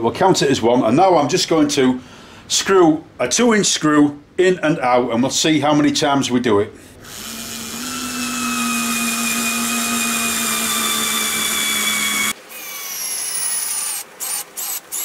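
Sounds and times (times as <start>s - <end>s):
sped-up screwdriver whir bursts: 7.0s - 15.0s
cordless screwdriver motor whine: 7.1s - 15.0s.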